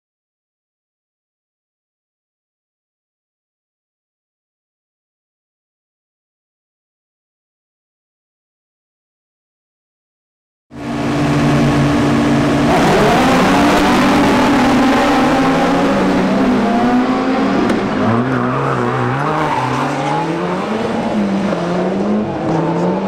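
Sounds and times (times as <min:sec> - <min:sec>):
rally car engines revving: 0:10.8 - 0:23.0.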